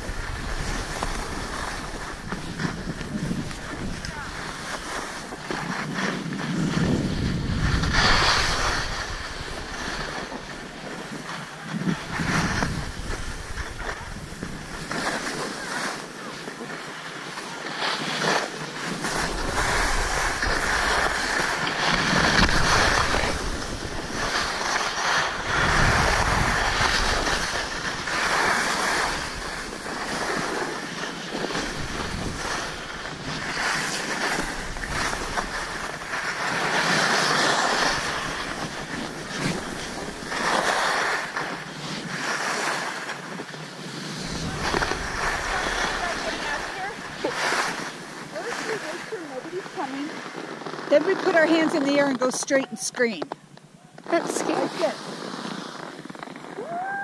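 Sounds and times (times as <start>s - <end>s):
wind buffeting microphone: 0.0s - 14.9s, 18.9s - 36.0s, 44.1s - 50.0s
skis scraping over snow: 0.0s - 57.0s.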